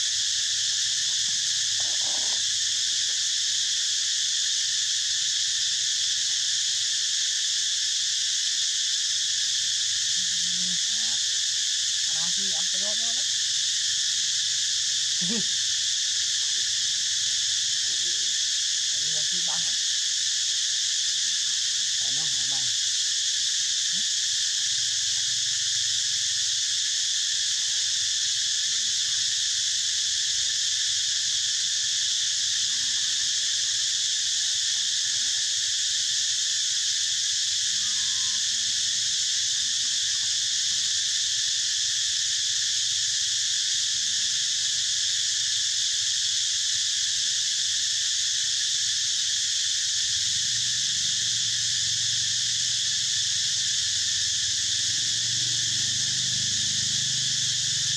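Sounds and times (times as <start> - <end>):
insect chorus buzzing: 0.0 - 57.9.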